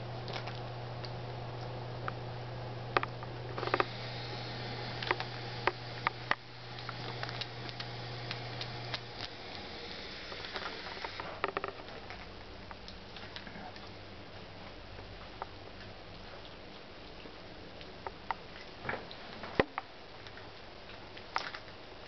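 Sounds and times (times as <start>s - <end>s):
low hum: 0.0s - 15.1s.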